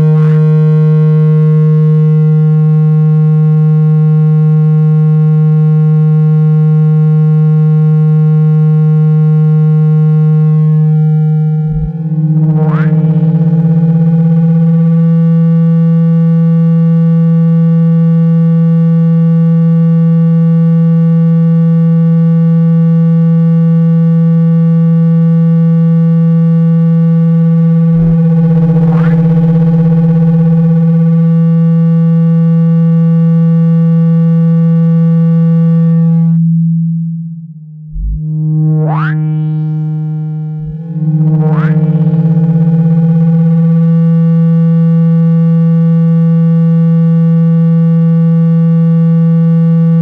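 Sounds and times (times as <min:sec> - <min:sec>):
low buzzing tone: 0:00.0 - 0:50.0
rising sweep tone: 0:10.2 - 0:14.0, 0:27.8 - 0:30.8, 0:37.9 - 0:43.7.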